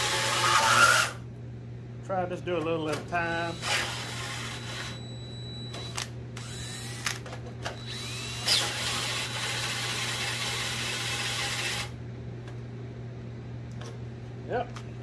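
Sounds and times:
drill motor whining: 0.0s - 1.2s, 3.3s - 5.1s, 5.7s - 11.9s.

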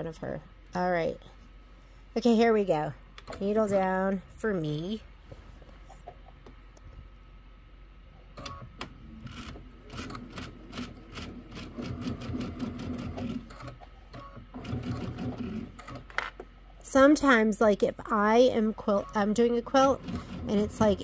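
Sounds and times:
sewing machine stitching: 9.2s - 16.1s, 19.7s - 21.0s.

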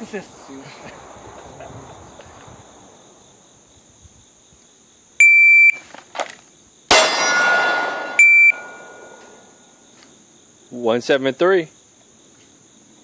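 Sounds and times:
crickets trilling: 0.0s - 13.0s
shot timer beep: 8.2s - 9.1s.

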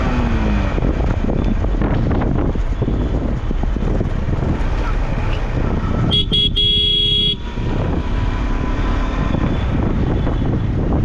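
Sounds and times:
motorcycle engine rumbling: 0.0s - 11.0s
wind rushing over microphone: 0.0s - 11.0s
vehicle horn toots: 5.9s - 7.5s.

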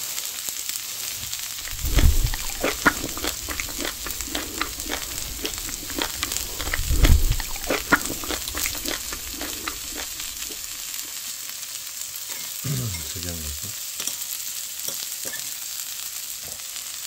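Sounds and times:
meat fat sizzling and crackling: 1.3s - 11.2s.

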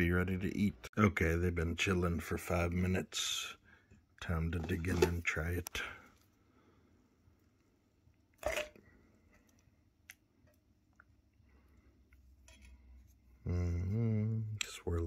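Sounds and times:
man's voice: 0.0s - 3.6s, 4.2s - 6.0s, 13.5s - 15.0s.

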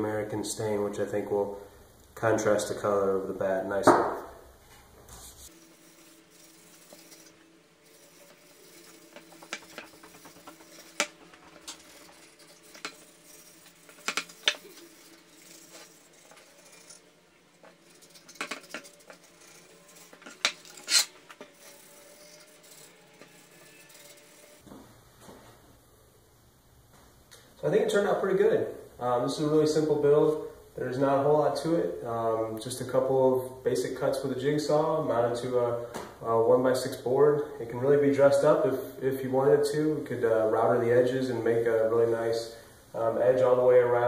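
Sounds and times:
rag wiping wood: 5.2s - 24.6s.

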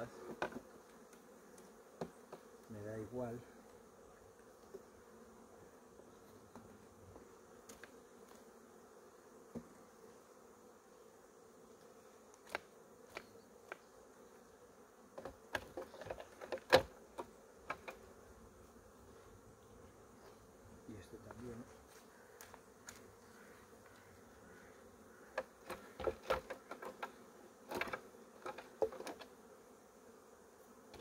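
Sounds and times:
bees buzzing: 0.0s - 31.0s
hive frames knocking: 15.2s - 18.0s, 25.2s - 29.3s.

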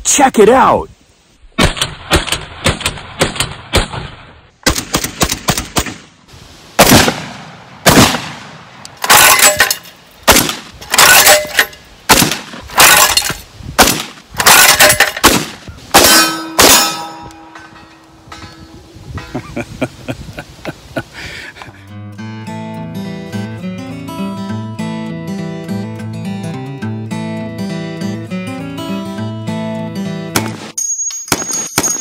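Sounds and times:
shotgun blasts with echo: 1.6s - 6.2s, 6.8s - 9.3s, 10.3s - 10.8s, 12.1s - 13.0s, 13.8s - 17.2s.

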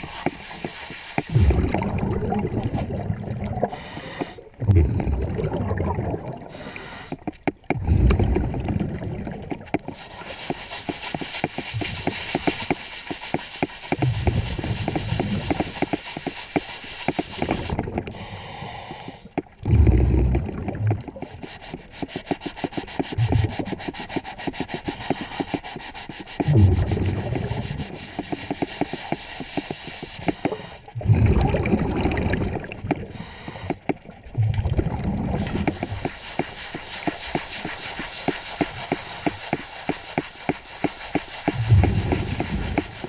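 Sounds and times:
clicking and rubbing on hull: 0.0s - 1.8s, 6.6s - 18.3s, 18.9s - 31.0s, 32.6s - 43.0s
diver's exhaled bubbles: 1.3s - 7.0s, 7.7s - 10.0s, 14.0s - 15.5s, 19.6s - 21.3s, 26.4s - 28.0s, 30.4s - 36.1s, 41.5s - 43.0s.

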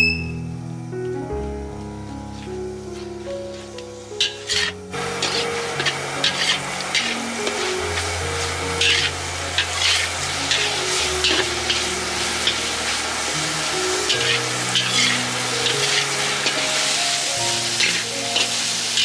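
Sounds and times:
food sizzling in a hot pan: 3.5s - 19.0s
utensil stirring and scraping: 4.2s - 19.0s.

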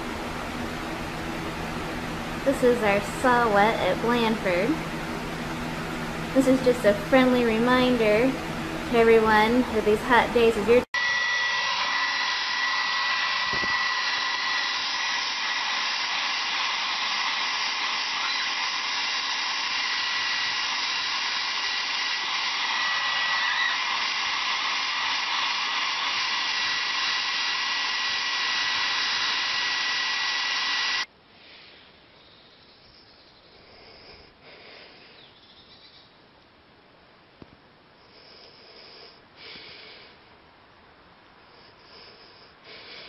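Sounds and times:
hair dryer running: 0.0s - 31.1s.

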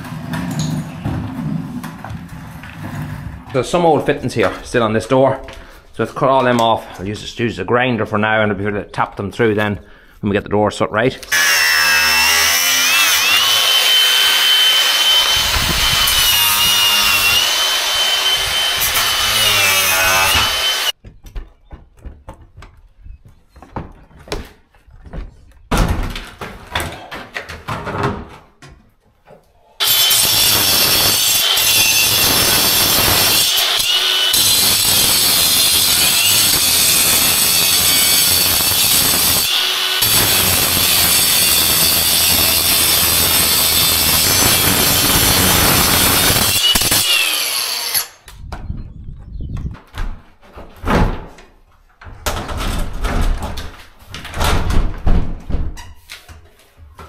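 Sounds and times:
angle grinder cutting: 11.2s - 21.0s, 29.8s - 48.3s.

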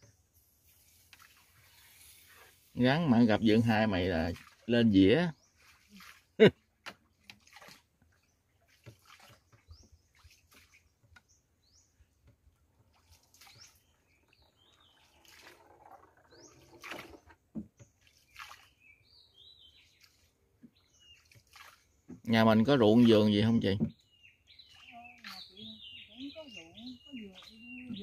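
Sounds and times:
water splashes: 0.7s - 11.4s, 12.1s - 28.0s
faint bird chirps: 18.0s - 28.0s.

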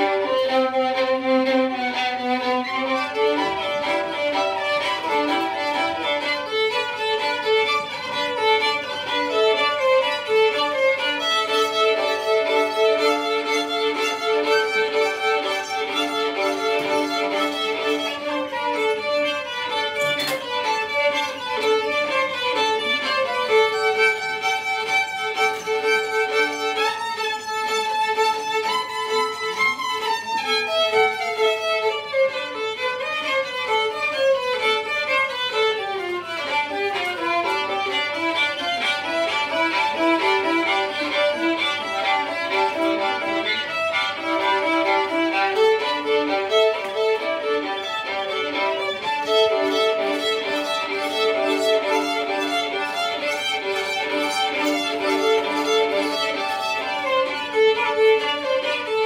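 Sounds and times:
violin playing held notes: 0.0s - 59.0s.

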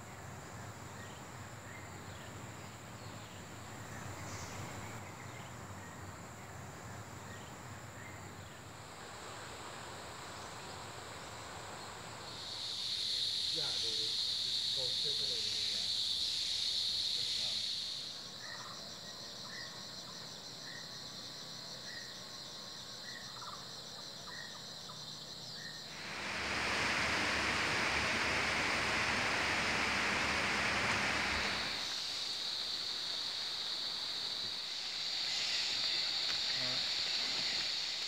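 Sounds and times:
insects droning: 0.0s - 38.0s
loud even rushing noise: 25.9s - 33.9s.

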